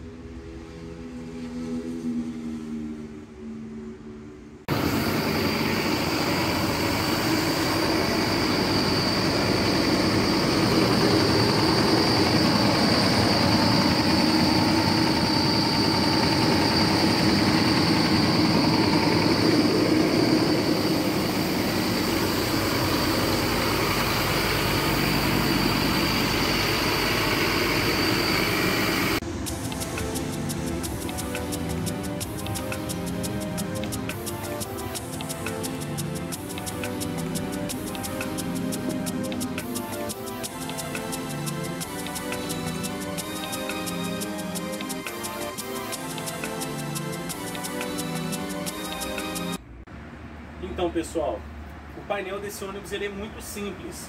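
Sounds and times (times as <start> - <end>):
high whine: 0.0 - 49.8
diesel bus engine idling: 4.7 - 29.2.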